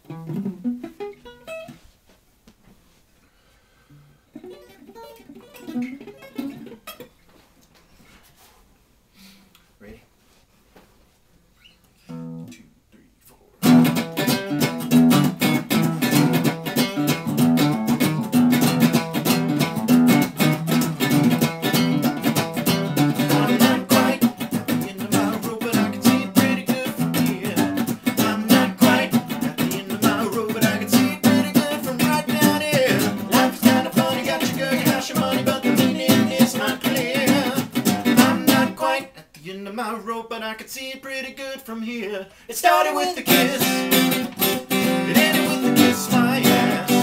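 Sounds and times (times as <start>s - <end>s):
guitars strumming and picking: 0.0s - 1.8s, 4.4s - 7.2s, 12.1s - 12.5s, 13.6s - 39.0s, 43.0s - 47.0s.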